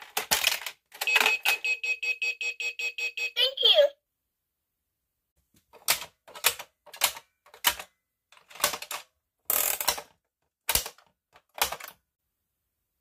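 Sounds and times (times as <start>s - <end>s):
plastic toy clicks and clacks: 0.0s - 1.7s, 5.8s - 12.0s.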